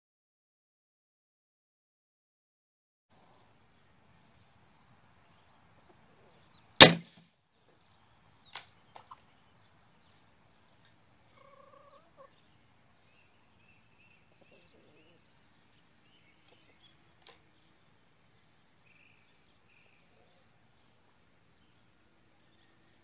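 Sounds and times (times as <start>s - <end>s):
air rifle shot: 6.8s - 7.2s.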